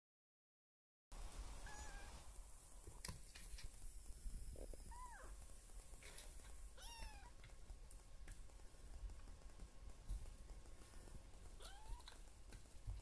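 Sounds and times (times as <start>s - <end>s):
kitten mewing: 4.9s - 5.3s, 11.6s - 12.1s.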